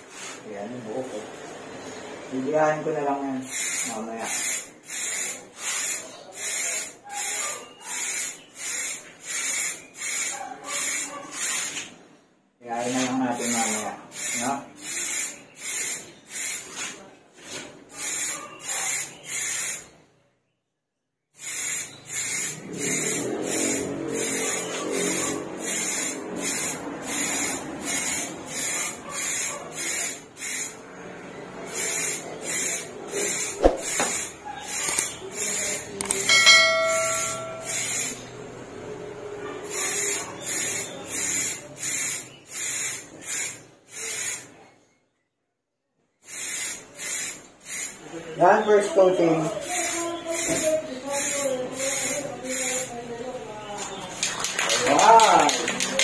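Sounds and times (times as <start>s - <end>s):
spray paint hissing from can: 3.4s - 11.9s, 12.9s - 19.9s, 21.4s - 30.8s, 31.6s - 38.3s, 39.6s - 44.5s, 46.2s - 48.1s, 49.5s - 53.0s
short ringing tone: 36.3s - 38.1s.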